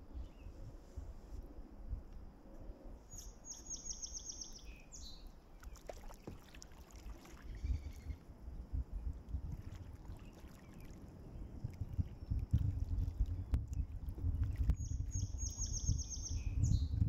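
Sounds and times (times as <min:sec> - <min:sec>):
wind rumble on microphone: 0:00.0 - 0:05.3, 0:07.1 - 0:17.0
songbird trilling: 0:03.1 - 0:05.8, 0:07.5 - 0:08.2, 0:14.8 - 0:17.0
paddle strokes splashing: 0:05.5 - 0:08.2, 0:09.2 - 0:14.8.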